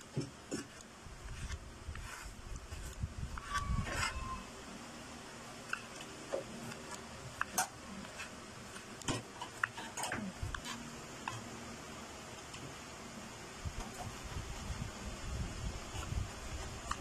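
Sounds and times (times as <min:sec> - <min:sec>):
knife cutting on wooden board: 0:00.2 - 0:04.3.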